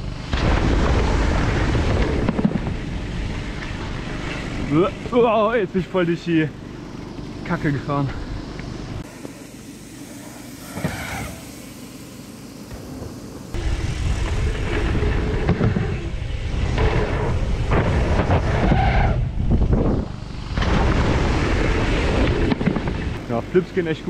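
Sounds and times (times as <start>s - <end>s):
bike tyres rolling over dirt: 0.0s - 24.0s
wind buffeting microphone: 13.5s - 23.2s.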